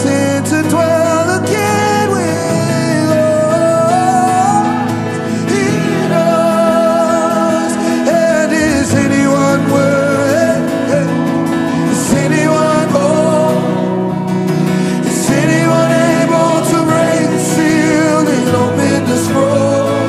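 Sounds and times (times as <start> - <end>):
instrumental accompaniment: 0.0 - 20.0.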